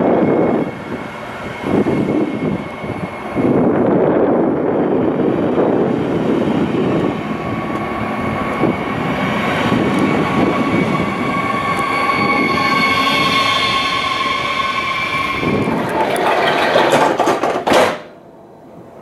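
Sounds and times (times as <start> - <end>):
train wheels rumbling: 0.0 - 19.0
high squeal: 6.0 - 17.4.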